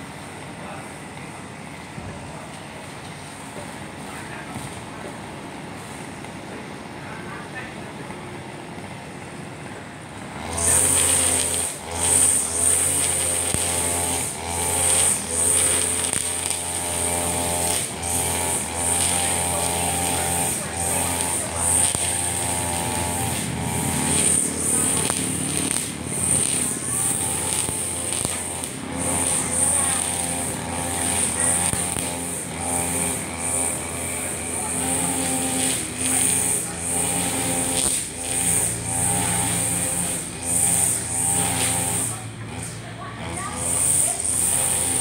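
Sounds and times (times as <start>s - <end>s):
brush cutter engine running: 10.2s - 45.0s
nylon line whining through grass: 10.4s - 42.2s.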